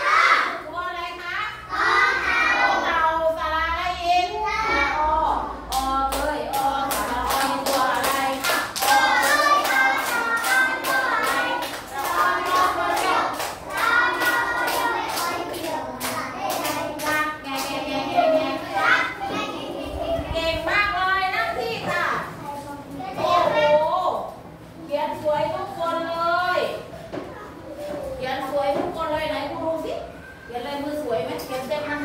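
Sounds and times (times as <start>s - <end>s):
children and teacher singing: 0.0s - 22.4s, 23.0s - 23.9s
rhythmic hand-clapping: 5.7s - 17.9s.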